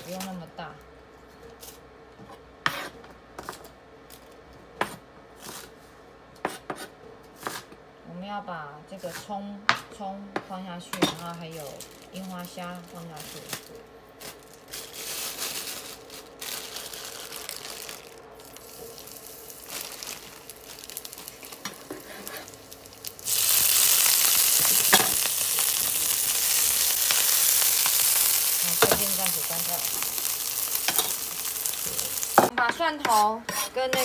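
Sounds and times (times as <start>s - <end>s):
oil sizzling in a frying pan: 18.4s - 32.5s.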